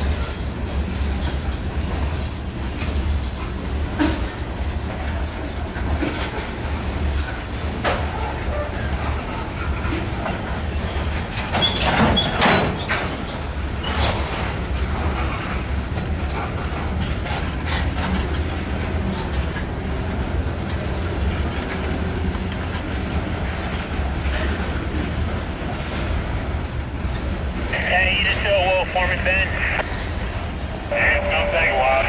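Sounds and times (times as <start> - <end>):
train wheels clacking: 0.0 - 27.7
freight cars rolling rumble: 0.0 - 32.0
wheel squeal: 10.6 - 14.5.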